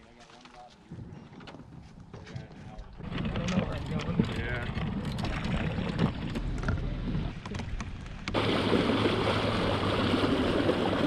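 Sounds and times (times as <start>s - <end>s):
wind and water rushing: 8.2s - 11.0s.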